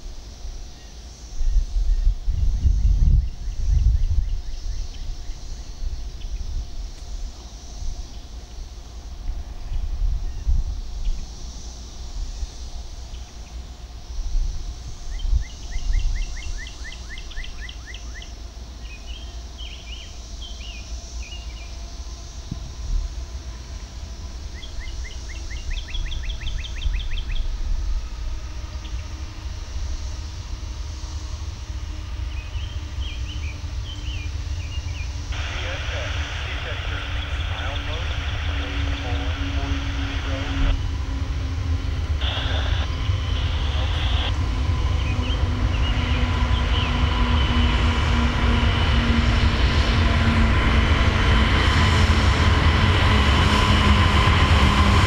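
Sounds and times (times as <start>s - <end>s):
distant diesel locomotive rumble: 0.0s - 55.0s
wind on microphone: 1.3s - 8.2s, 22.4s - 24.9s, 25.6s - 55.0s.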